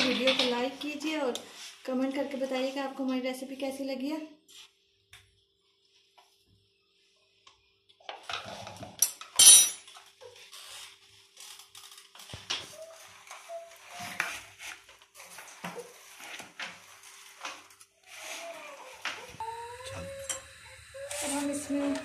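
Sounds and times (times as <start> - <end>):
kitchen utensils clattering: 0.0 - 0.7, 8.2 - 10.0.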